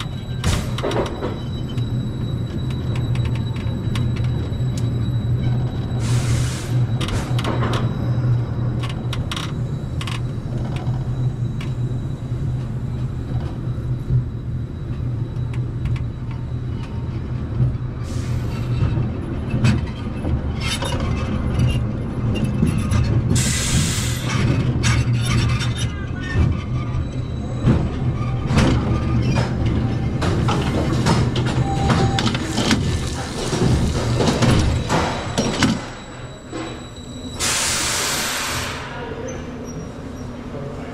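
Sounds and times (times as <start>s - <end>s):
track clanks and rattles: 0.0s - 37.6s
roller coaster wheels rumbling: 6.8s - 37.3s.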